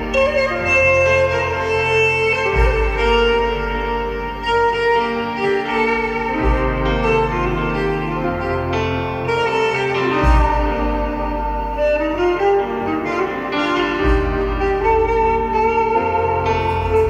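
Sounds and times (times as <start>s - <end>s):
bowed string melody: 0.0s - 17.0s
deep bass notes: 0.0s - 17.0s
keyboard chords: 0.0s - 17.0s.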